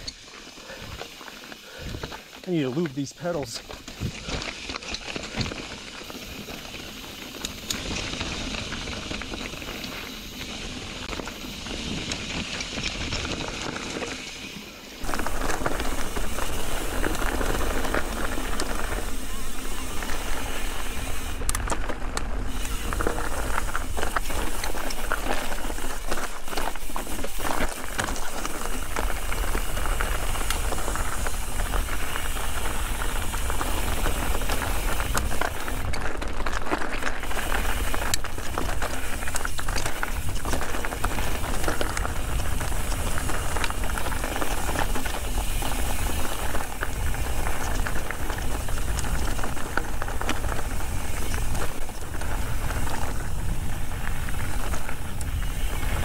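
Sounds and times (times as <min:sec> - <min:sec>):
tyres crunching over loose rock: 0:00.0 - 0:14.4, 0:15.0 - 0:56.0
bike clattering and rattling: 0:00.0 - 0:56.0
wind noise on microphone: 0:15.0 - 0:56.0.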